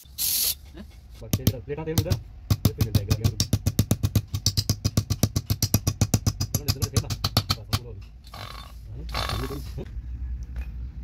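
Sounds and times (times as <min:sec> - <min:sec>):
compressed air hiss: 0:00.0 - 0:00.6.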